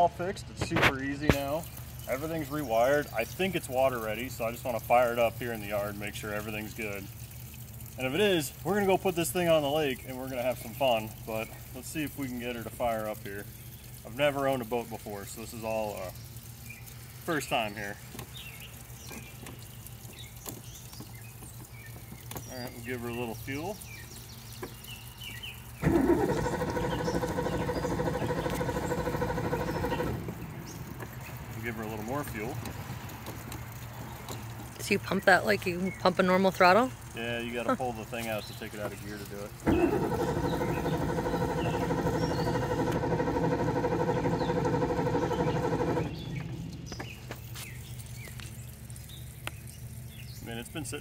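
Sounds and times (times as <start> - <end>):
faint birds chirping: 1.1 - 51.0
engine starter cranking: 25.8 - 32.1, 39.6 - 47.3.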